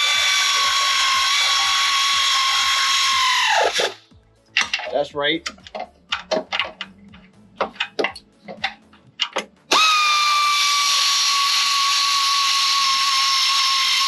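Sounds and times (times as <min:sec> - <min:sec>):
pneumatic air ratchet running: 0:00.0 - 0:04.0, 0:09.2 - 0:14.0.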